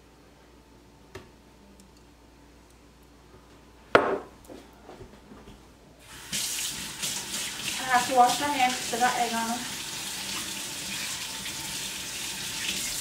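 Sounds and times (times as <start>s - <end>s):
cup set down on countertop: 4.0s - 4.3s.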